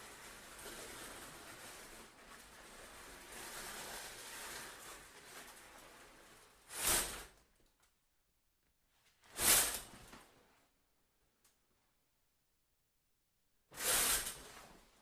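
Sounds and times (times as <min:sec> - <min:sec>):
shower curtain rings sliding: 0:00.0 - 0:07.4, 0:09.2 - 0:10.1, 0:13.7 - 0:15.0.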